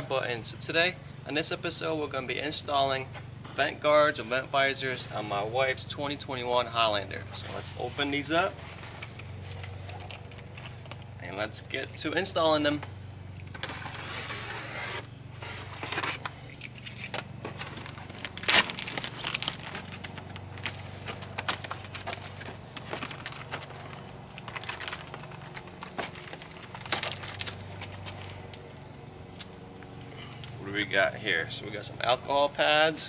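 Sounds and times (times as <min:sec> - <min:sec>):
cardboard tearing and crinkling: 0:13.6 - 0:16.4, 0:17.4 - 0:28.3.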